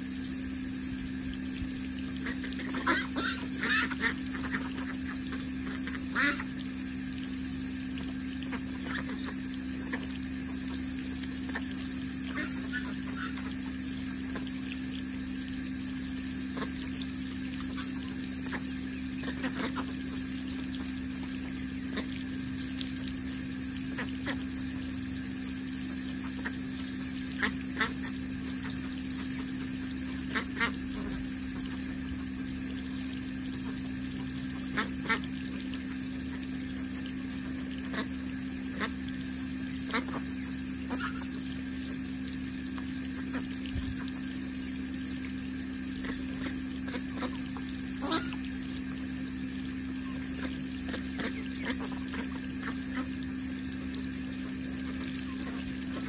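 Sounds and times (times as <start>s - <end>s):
steady high hiss: 0.0s - 56.0s
ducks quacking: 2.2s - 6.5s, 17.7s - 20.2s, 46.0s - 48.4s.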